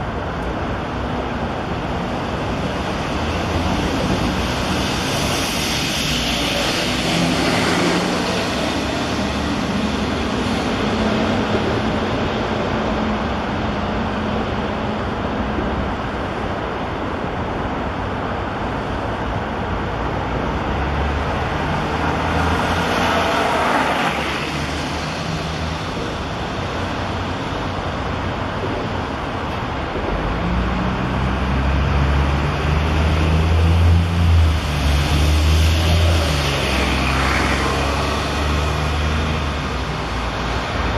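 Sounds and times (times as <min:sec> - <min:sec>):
heavy vehicle engine drone: 0:00.0 - 0:40.9
highway traffic noise: 0:00.0 - 0:40.9
vehicle passing by: 0:03.4 - 0:11.5, 0:30.4 - 0:40.9.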